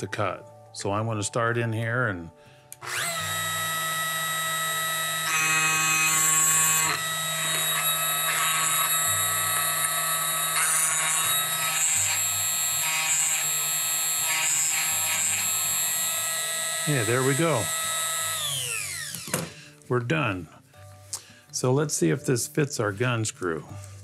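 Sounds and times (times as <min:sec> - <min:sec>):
burr grinding steel blade: 0:02.8 - 0:19.3
grinder motor whining: 0:02.8 - 0:19.5.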